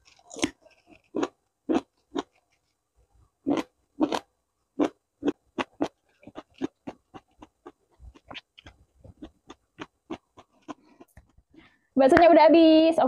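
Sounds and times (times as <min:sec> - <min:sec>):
wet chewing and lip-smacking: 0:03.5 - 0:11.5.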